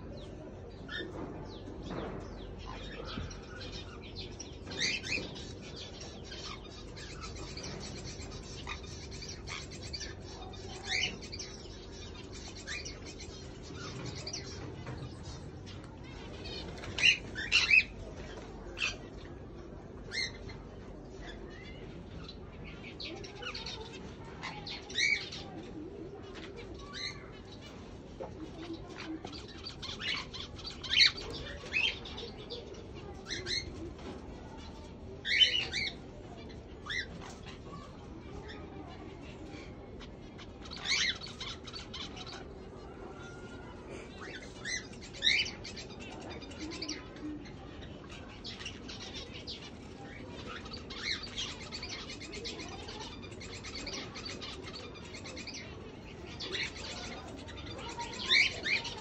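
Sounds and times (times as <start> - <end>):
parrots chirping: 16.1 - 18.1, 40.0 - 43.6, 47.8 - 59.0.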